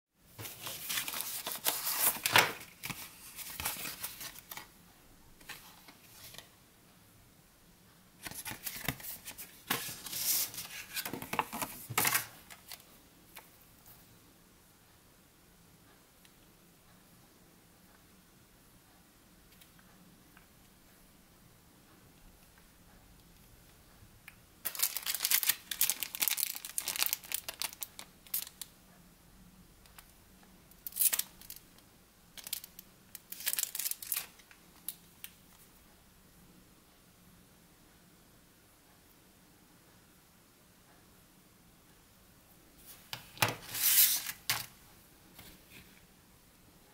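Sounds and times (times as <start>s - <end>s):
plastic bag and cardboard crinkling: 0.4s - 4.7s, 24.7s - 28.6s, 32.4s - 34.5s.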